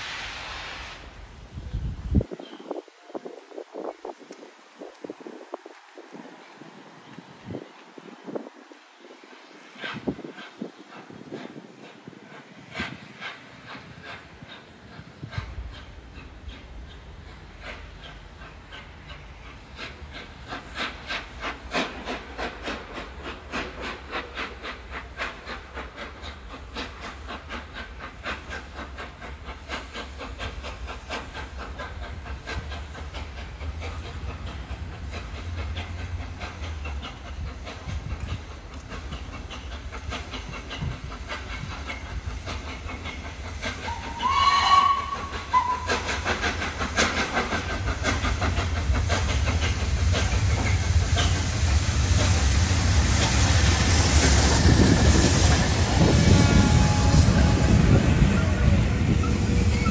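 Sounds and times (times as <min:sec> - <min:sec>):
steam locomotive exhaust beats: 0:00.0 - 0:59.9
steam whistle blast: 0:43.9 - 0:46.1, 0:56.0 - 0:59.9.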